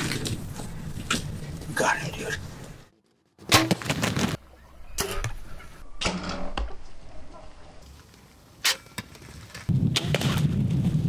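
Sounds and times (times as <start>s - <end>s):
arrows striking: 3.4s - 4.2s
bows shooting: 3.4s - 6.9s.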